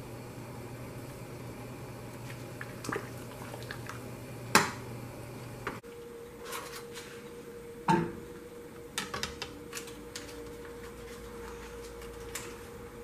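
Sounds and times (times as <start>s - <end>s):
steady hum: 0.0s - 13.0s
broth bubbling: 0.9s - 5.5s.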